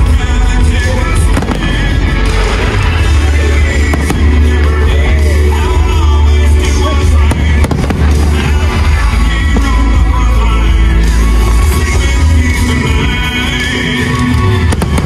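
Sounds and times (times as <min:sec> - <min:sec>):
fireworks bursting and crackling: 0:00.0 - 0:15.0
music with deep bass: 0:00.0 - 0:15.0
person singing: 0:00.0 - 0:15.0
sharp firework bangs: 0:07.3 - 0:09.8.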